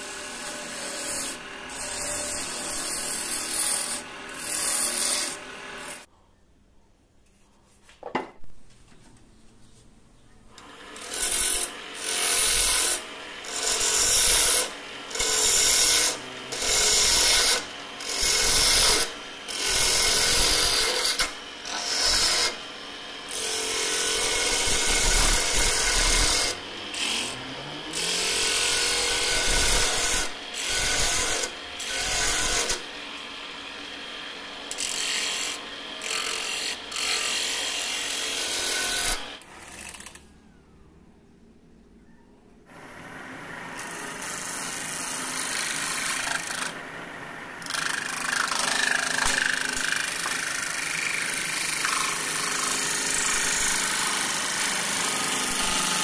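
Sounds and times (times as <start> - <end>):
lathe running: 10.6 - 39.4, 45.4 - 56.0.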